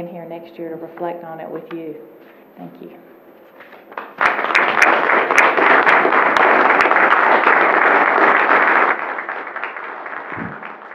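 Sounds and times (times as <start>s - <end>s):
audience applauding: 4.0s - 10.9s.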